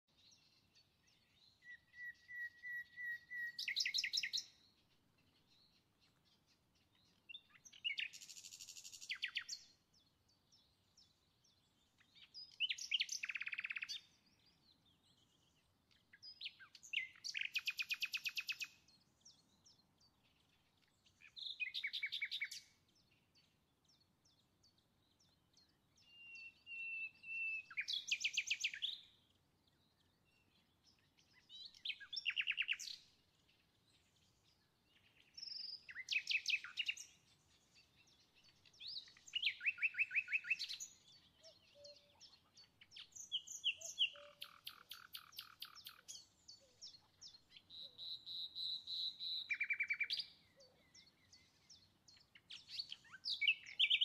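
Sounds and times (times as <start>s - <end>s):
songbird trilling: 12.5s - 14.0s, 16.6s - 18.7s, 38.5s - 54.0s.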